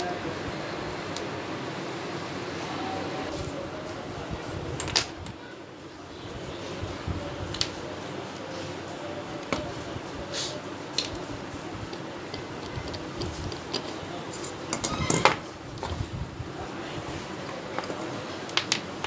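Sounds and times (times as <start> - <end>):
fan hum: 0.0 - 19.0
wires and clips rattling: 11.8 - 16.1.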